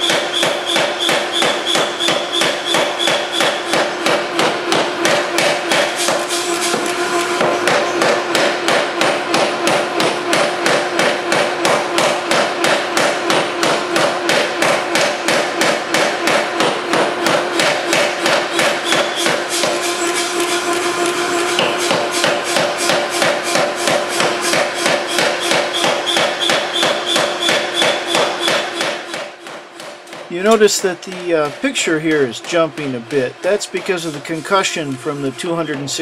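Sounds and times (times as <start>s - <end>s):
forging hammer pounding steel: 0.0s - 36.0s.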